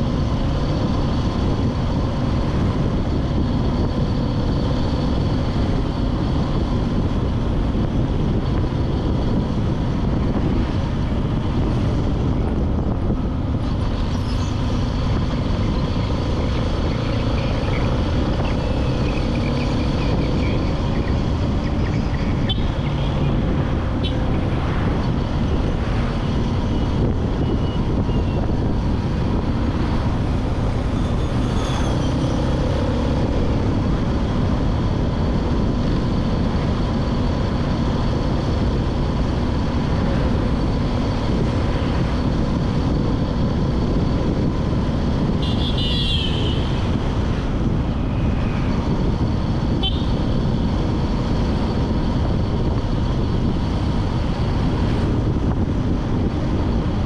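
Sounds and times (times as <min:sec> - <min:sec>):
road and traffic rumble: 0:00.0 - 0:57.0
vehicle horn toot: 0:45.4 - 0:46.7, 0:49.8 - 0:50.1.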